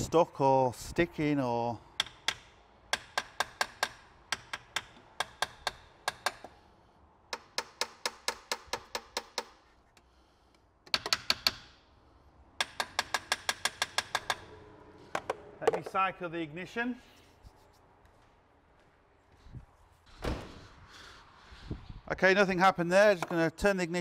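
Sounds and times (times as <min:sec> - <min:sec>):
hammer tapping on motor: 0:02.0 - 0:06.5, 0:12.6 - 0:14.4.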